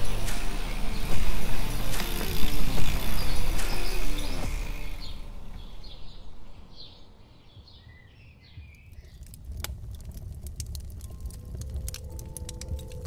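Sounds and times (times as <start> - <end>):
bird chirps: 2.8 - 9.2
wood fire crackling: 8.6 - 13.0
low rumble: 8.9 - 13.0.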